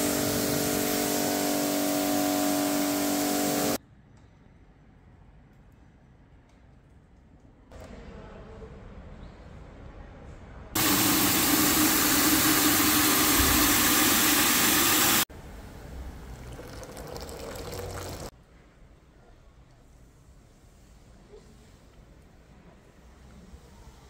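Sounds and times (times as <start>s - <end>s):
pressure washer spraying water: 0.0s - 3.8s, 10.8s - 15.3s.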